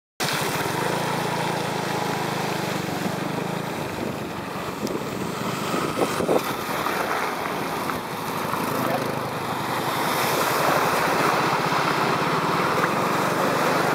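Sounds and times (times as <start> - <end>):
tyres hissing on wet road: 0.2 - 13.9
vehicle engine hum: 0.2 - 13.9
wind on microphone: 3.8 - 8.2.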